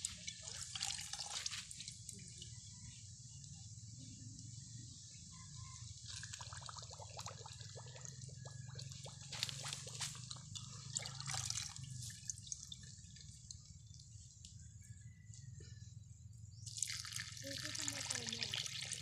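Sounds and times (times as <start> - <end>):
liquid pouring and splashing: 0.0 - 2.1, 6.0 - 14.1, 16.7 - 19.0.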